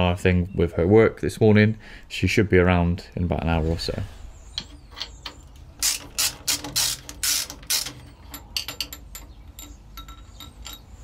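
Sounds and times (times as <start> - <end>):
metal tool scraping: 3.6 - 11.0
sharp metallic clicks: 4.6 - 11.0.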